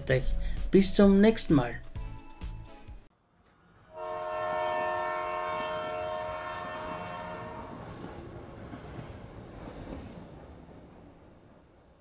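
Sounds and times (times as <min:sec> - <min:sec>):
rumble of passing train: 0:03.2 - 0:12.0
train horn blast: 0:03.9 - 0:07.9.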